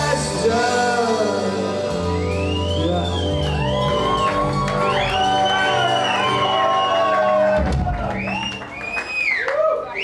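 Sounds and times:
rock band playing a held chord: 0:00.0 - 0:08.2
crowd cheering and whooping: 0:02.0 - 0:10.0.

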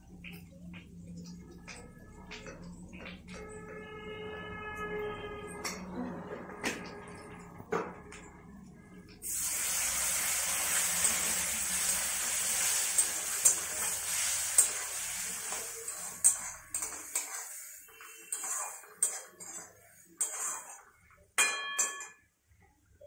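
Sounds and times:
oil sizzling: 0:06.8 - 0:21.3
metal spatula scraping pan: 0:12.5 - 0:21.0
spoon clinks: 0:21.4 - 0:22.3.

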